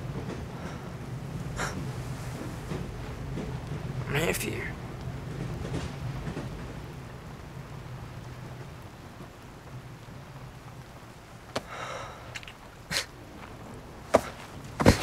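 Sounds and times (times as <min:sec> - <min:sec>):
ambient hiss: 0:00.0 - 0:15.0
breathy rustle: 0:14.1 - 0:15.0.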